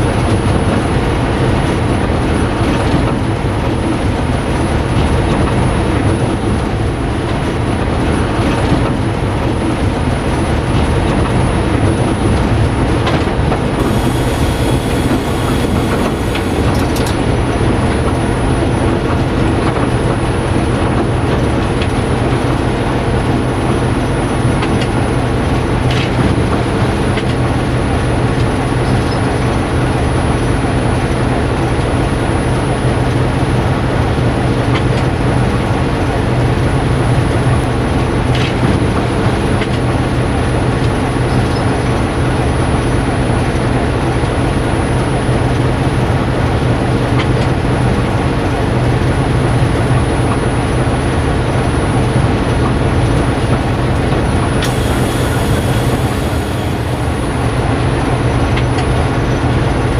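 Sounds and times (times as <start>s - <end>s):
diesel locomotive engine running: 0.0s - 59.9s
high squeal: 13.8s - 17.0s, 54.7s - 57.7s.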